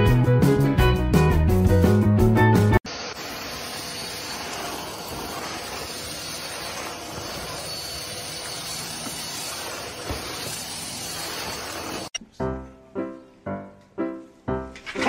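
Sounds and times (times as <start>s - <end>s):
vacuum cleaner running: 2.9s - 12.2s.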